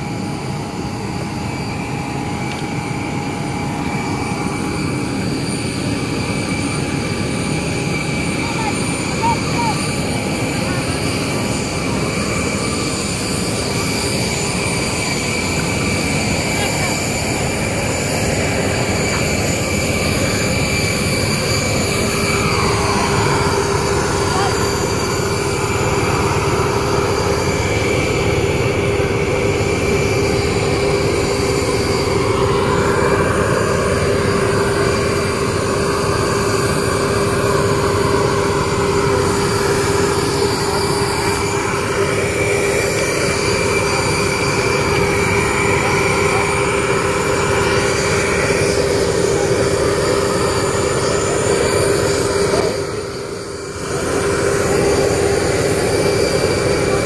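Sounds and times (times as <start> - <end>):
aircraft auxiliary power unit whine: 0.0 - 57.0.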